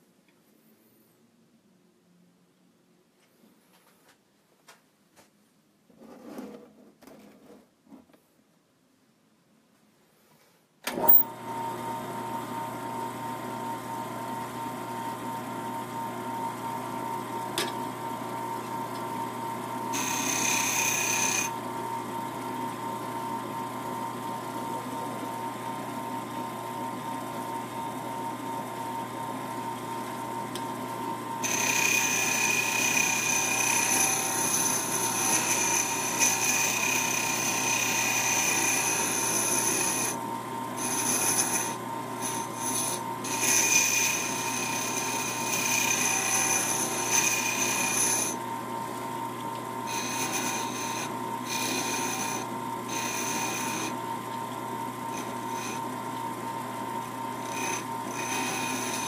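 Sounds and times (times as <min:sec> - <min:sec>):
lathe motor humming: 0:11.0 - 0:59.0
turning tool scraping wood: 0:19.9 - 0:21.6, 0:30.5 - 0:40.2, 0:40.8 - 0:48.5, 0:49.4 - 0:56.4, 0:57.0 - 0:59.0.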